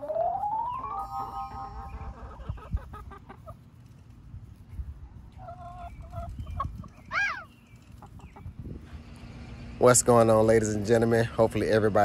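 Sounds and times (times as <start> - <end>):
hens clucking: 0.0 - 4.0, 5.2 - 8.6.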